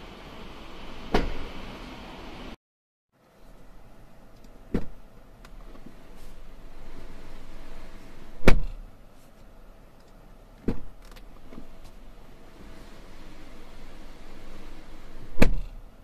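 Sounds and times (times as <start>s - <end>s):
car door shutting thud: 1.1s - 1.6s, 4.7s - 5.0s, 8.4s - 8.8s, 10.6s - 11.7s, 15.3s - 15.8s.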